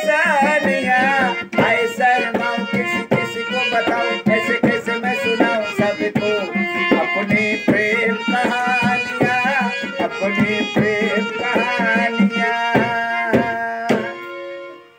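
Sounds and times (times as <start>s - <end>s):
harmonium chords and melody: 0.0s - 14.9s.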